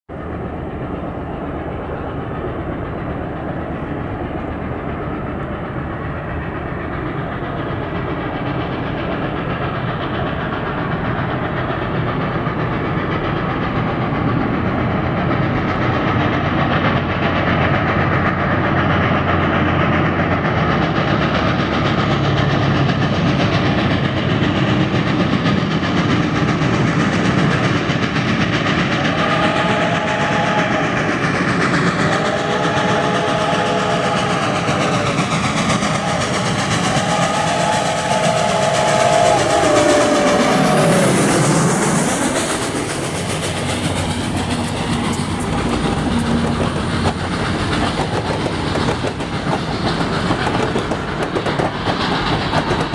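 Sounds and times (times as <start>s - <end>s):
steam train rumbling: 0.1s - 52.9s
train whistle: 28.8s - 43.2s, 44.4s - 49.7s.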